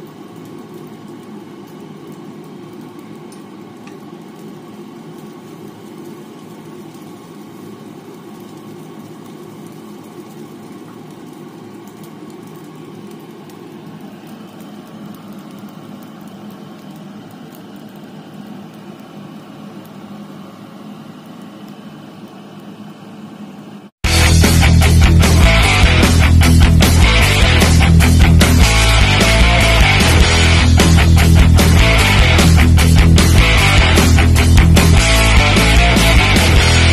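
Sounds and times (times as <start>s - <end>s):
fried rice cooking in a pan: 0.0s - 24.4s
loud music: 24.0s - 36.9s.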